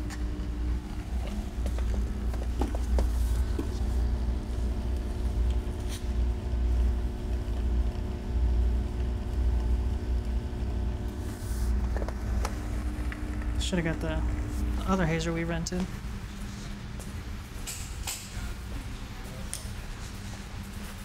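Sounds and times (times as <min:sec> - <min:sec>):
hazer machine rumbling: 0:00.0 - 0:21.0.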